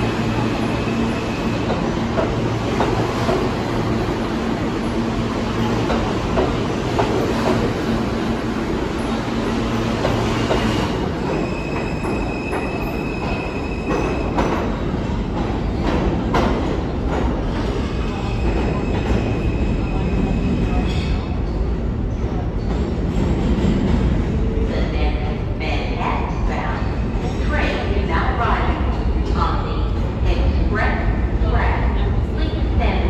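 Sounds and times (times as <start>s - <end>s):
subway train rumble: 0.0s - 33.0s
train wheel squeal: 10.5s - 14.6s, 17.7s - 21.2s.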